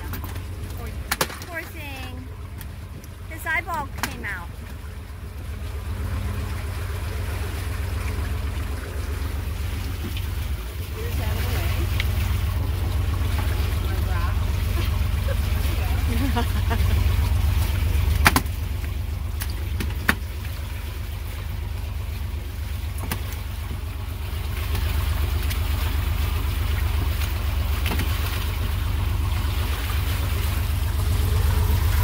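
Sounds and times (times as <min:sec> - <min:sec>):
boat engine humming: 0:00.0 - 0:32.0
sharp knocks: 0:18.2 - 0:18.6.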